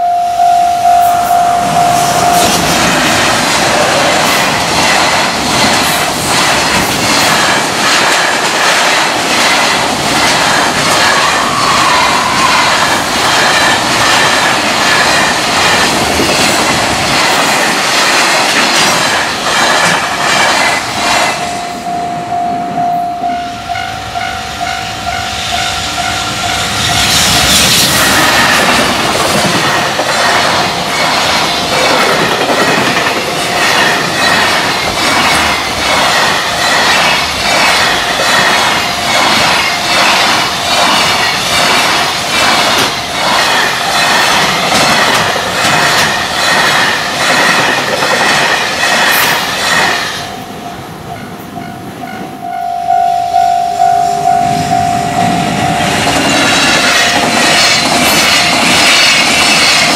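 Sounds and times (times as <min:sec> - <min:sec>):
crossing warning bell ringing: 0:00.0 - 0:04.7, 0:21.3 - 0:47.1, 0:50.0 - 0:59.0
freight train rushing past: 0:00.0 - 0:59.9
wheels clacking over rail joints: 0:02.3 - 0:21.5, 0:26.0 - 0:50.5, 0:55.2 - 0:59.9.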